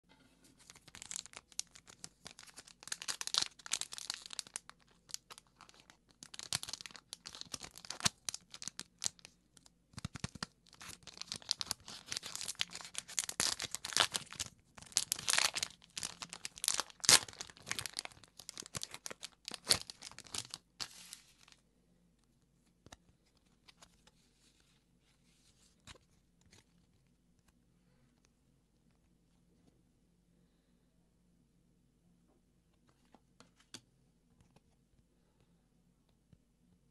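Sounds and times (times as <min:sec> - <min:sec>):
plastic wrapper crinkling and tearing: 0:00.6 - 0:21.6.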